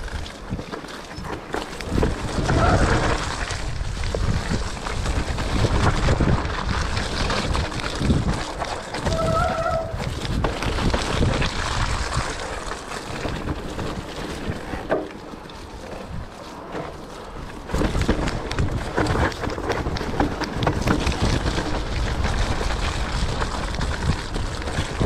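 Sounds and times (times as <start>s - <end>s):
bike rattling over ground: 0.0s - 25.0s
wind rumbling on microphone: 0.0s - 25.0s
short high squeal: 9.0s - 9.9s.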